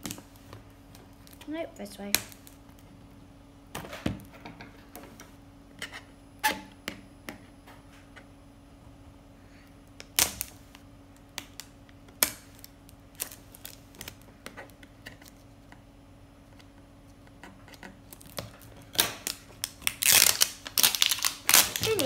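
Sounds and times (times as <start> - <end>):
scissors snipping packaging: 18.1 - 22.0.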